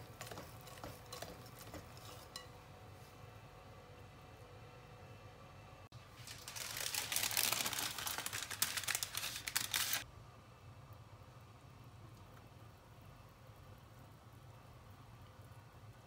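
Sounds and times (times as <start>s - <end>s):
baking parchment crinkling: 6.0s - 10.0s.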